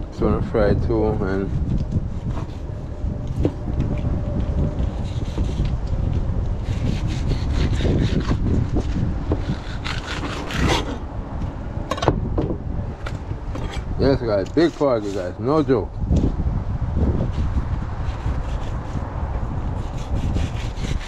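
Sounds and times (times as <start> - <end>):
wind rumbling on microphone: 0.0 - 21.0
knife scraping fish on stone: 6.6 - 11.0.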